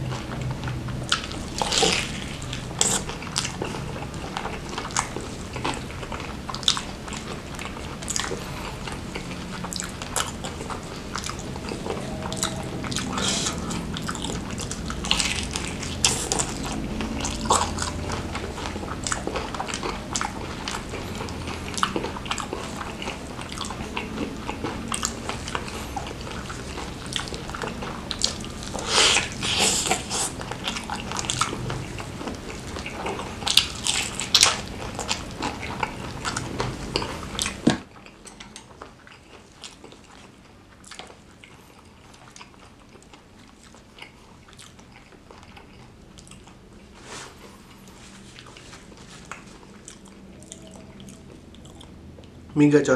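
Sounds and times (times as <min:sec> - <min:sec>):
crunchy chewing of fried chicken: 0:00.0 - 0:52.5.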